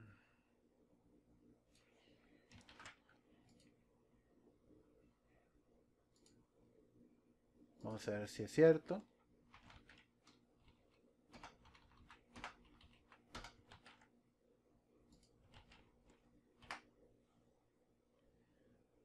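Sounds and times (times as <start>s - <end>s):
computer keyboard keystrokes: 2.5s - 3.7s, 9.5s - 14.1s, 15.1s - 16.9s.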